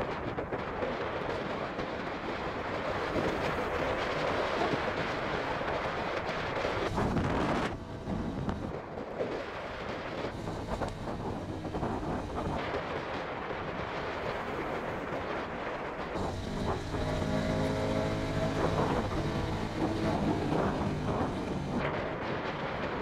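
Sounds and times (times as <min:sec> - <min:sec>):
wind rushing over microphone: 0:00.0 - 0:23.0
motorcycle engine running: 0:06.8 - 0:08.7, 0:10.3 - 0:12.7, 0:16.0 - 0:21.8.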